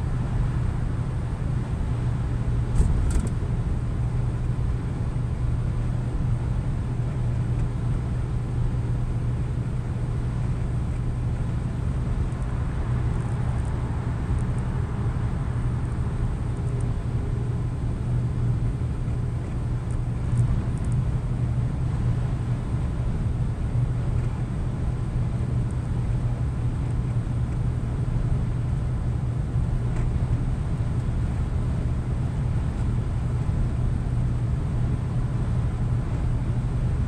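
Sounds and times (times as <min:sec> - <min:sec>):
truck engine drone: 0:00.0 - 0:37.0
tyre and road noise: 0:09.9 - 0:24.6.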